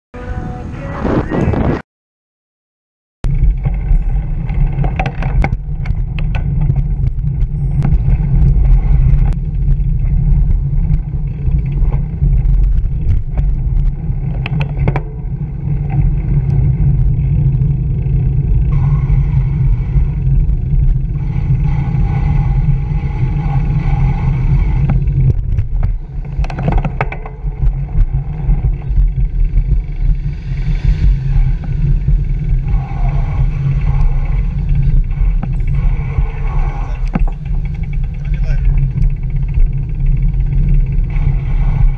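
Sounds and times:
bicycle road rumble: 0.2 - 1.8, 3.2 - 41.9
wind buffeting: 0.2 - 1.8, 3.2 - 41.9
held tone: 5.5 - 9.4.

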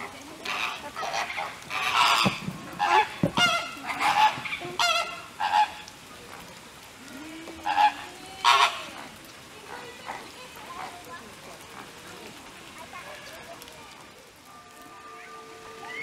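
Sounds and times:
flamingos calling: 0.0 - 6.1, 7.6 - 9.2, 14.8 - 16.0.

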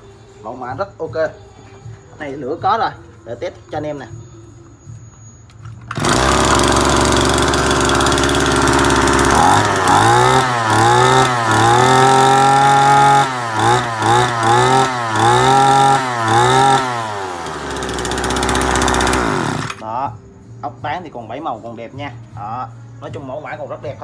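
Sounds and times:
brush cutter engine revving: 5.9 - 19.9.

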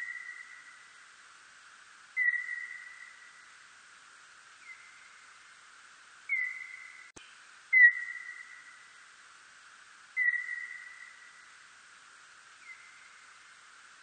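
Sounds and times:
whistle-like bat calls: 0.0 - 0.8, 2.2 - 3.4, 6.3 - 7.1, 7.7 - 8.8, 10.2 - 11.4
steady hiss: 0.0 - 14.0.

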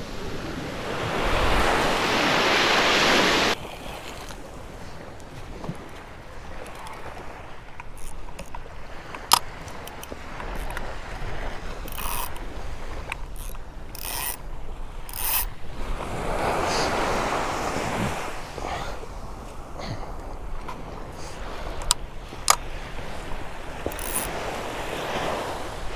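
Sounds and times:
fishing reel ratcheting: 7.8 - 8.6, 9.2 - 10.9, 11.8 - 12.4, 13.0 - 14.4, 15.0 - 15.5, 23.8 - 24.4
sharp click: 9.2 - 10.8.

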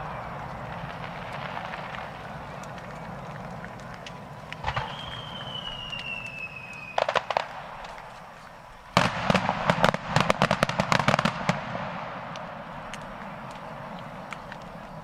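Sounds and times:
firework bangs: 0.0 - 14.5
firework crackling: 0.0 - 15.0
firework whistle: 4.6 - 7.5.

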